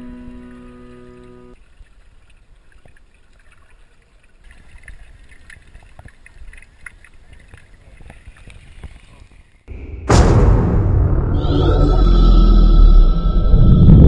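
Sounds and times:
water sloshing and lapping: 0:00.0 - 0:09.7
small clicks and splashes: 0:00.3 - 0:09.7
low rumble: 0:09.7 - 0:14.0.

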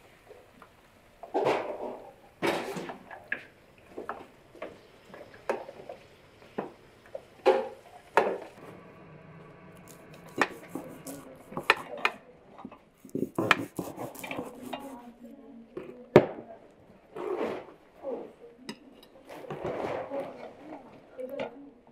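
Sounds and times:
knife tapping on cutting board: 0:10.3 - 0:11.9.

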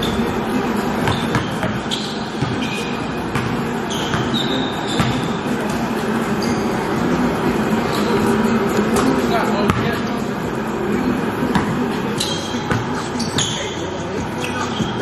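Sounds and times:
sneakers squeaking on gym floor: 0:00.0 - 0:07.2, 0:11.4 - 0:15.0
steady low hum: 0:00.0 - 0:13.2
basketball bouncing: 0:01.0 - 0:05.4, 0:09.0 - 0:09.9, 0:11.5 - 0:11.9.

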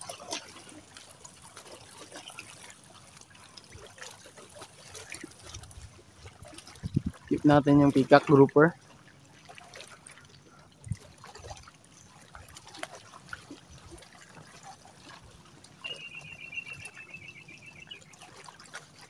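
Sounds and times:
shallow water lapping: 0:00.0 - 0:19.0
small splashes: 0:00.0 - 0:19.0.

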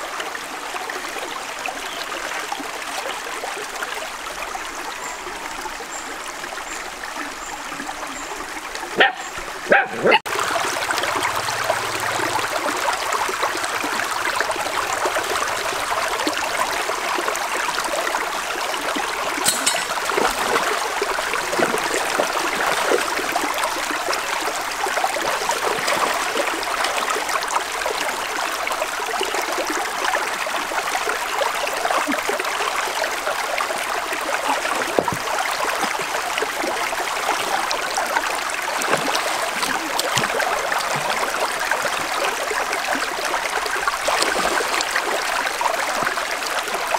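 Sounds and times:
stream trickling over rocks: 0:00.0 - 0:46.9
small splashes: 0:19.3 - 0:27.3, 0:34.3 - 0:46.9.

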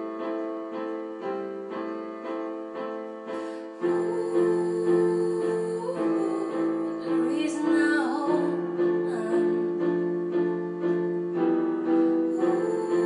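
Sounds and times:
piano playing sustained chords: 0:00.0 - 0:13.0
person singing gliding line: 0:03.8 - 0:10.1, 0:12.1 - 0:13.0.

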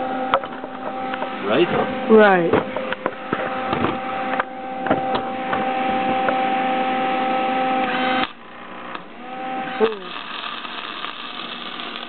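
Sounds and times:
constant hum: 0:00.0 - 0:12.0
welding arc crackling: 0:07.6 - 0:12.0.

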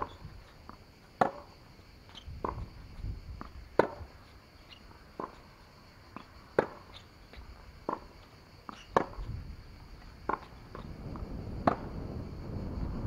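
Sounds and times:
tennis ball pocks: 0:03.4 - 0:04.1, 0:07.8 - 0:09.3
low rumble: 0:10.6 - 0:13.0.

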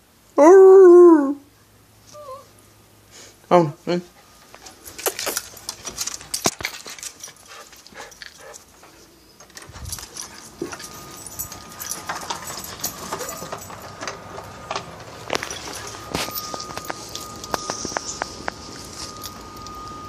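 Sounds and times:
leash clip and tags jingling: 0:04.6 - 0:18.3.

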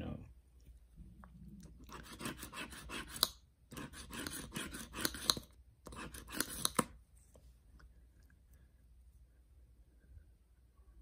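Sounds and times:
scratching a lottery ticket: 0:01.8 - 0:06.9.

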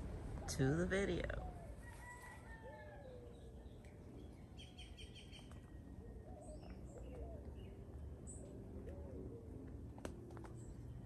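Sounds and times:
birds chirping: 0:02.7 - 0:11.0.

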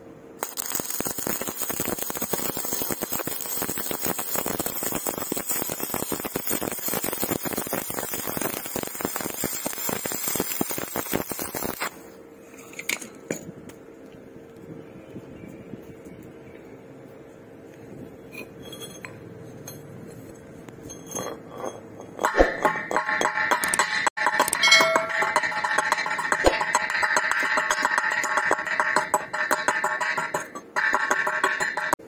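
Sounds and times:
welding arc crackling: 0:00.4 - 0:12.1, 0:22.3 - 0:32.0.

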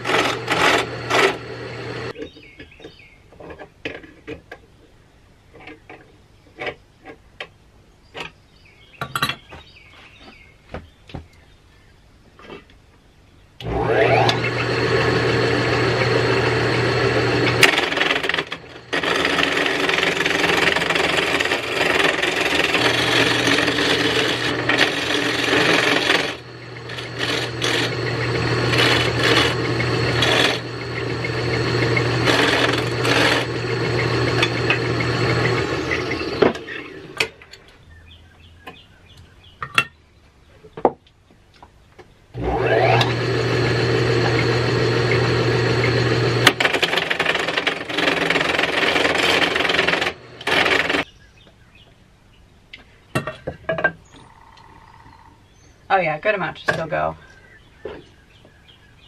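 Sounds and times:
wood lathe motor hum: 0:00.0 - 0:02.2, 0:13.6 - 0:37.3, 0:42.4 - 0:51.0
turning tool scraping wood: 0:00.0 - 0:04.3, 0:13.6 - 0:37.4, 0:42.4 - 0:51.1.

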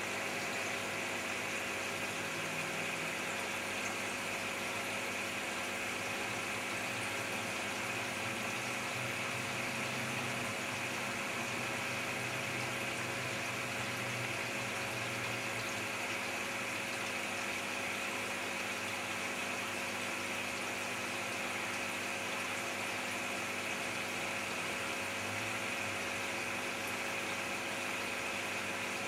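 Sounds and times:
aquarium filter hum and bubbling: 0:00.0 - 0:29.0.

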